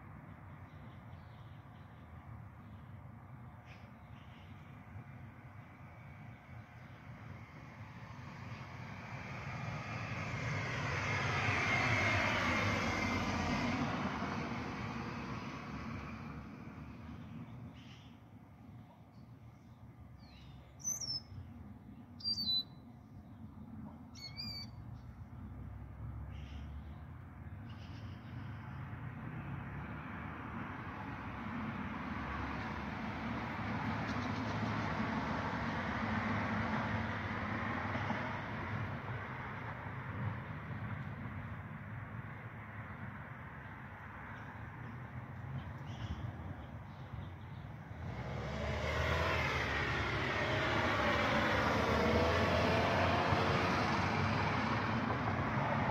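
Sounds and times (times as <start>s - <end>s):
vehicle passing: 7.4s - 17.5s, 28.4s - 55.9s.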